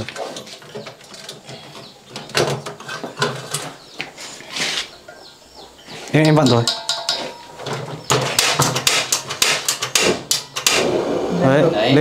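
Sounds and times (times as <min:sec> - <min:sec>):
stove igniter clicking: 0:08.8 - 0:10.9.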